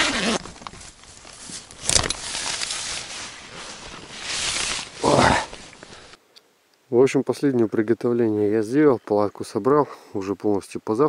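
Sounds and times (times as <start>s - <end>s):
tent fabric rustling: 0.0s - 6.2s.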